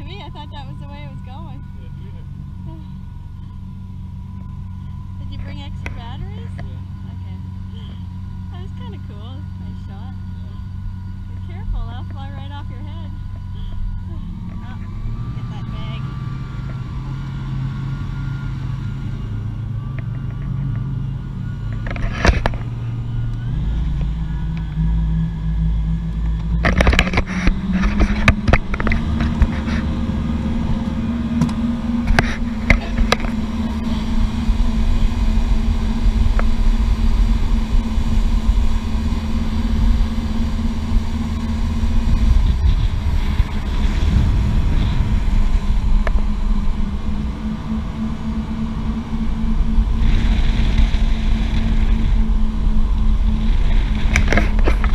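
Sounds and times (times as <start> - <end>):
motorboat engine running: 0.0 - 54.9
wind and water rushing: 27.6 - 54.9.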